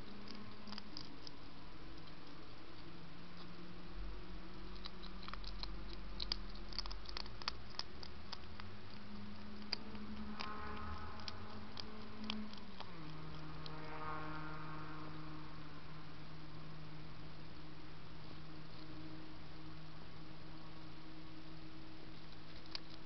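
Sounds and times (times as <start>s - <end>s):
hedgehog crunching dry food: 0.0s - 3.6s, 4.5s - 13.9s, 20.6s - 23.0s
steady low hum and hiss: 0.0s - 23.0s.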